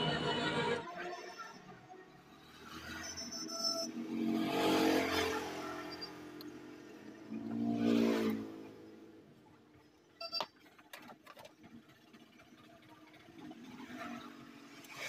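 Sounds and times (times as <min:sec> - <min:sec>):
passing vehicle engine: 0:00.0 - 0:09.6.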